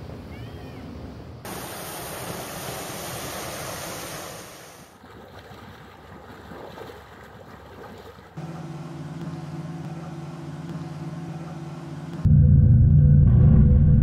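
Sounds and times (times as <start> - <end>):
rushing water: 1.4 - 8.4
water lapping and splashing: 1.4 - 9.6.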